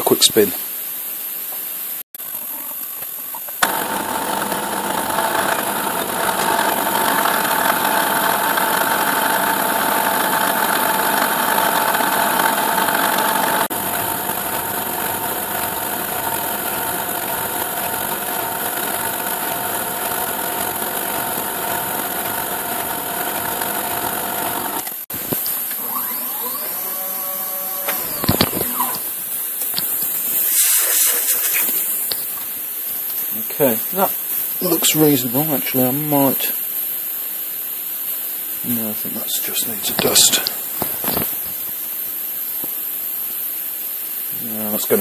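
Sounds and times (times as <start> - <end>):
cutter cutting metal: 3.6 - 26.8
milling machine whining: 3.6 - 32.5.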